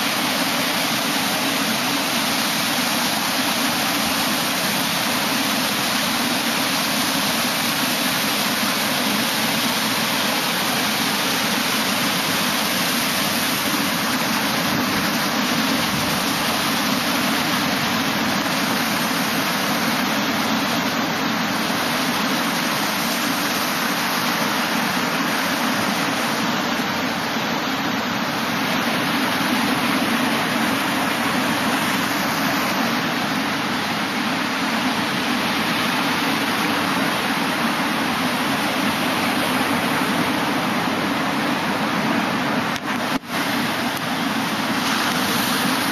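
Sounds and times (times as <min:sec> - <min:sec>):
ocean surf breaking: 0:00.0 - 0:45.9.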